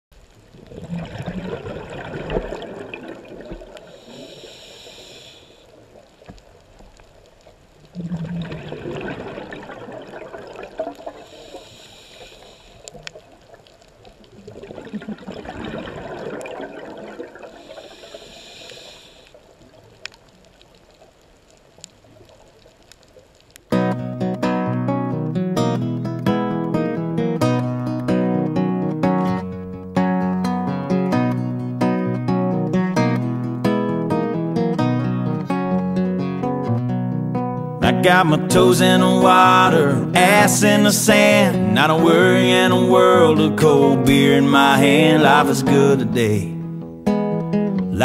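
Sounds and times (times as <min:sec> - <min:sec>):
exhaled bubbles underwater: 0:00.4 - 0:06.2, 0:07.8 - 0:11.8, 0:12.8 - 0:19.0
regulator inhalation hiss: 0:03.8 - 0:05.8, 0:11.0 - 0:13.2, 0:17.5 - 0:19.5.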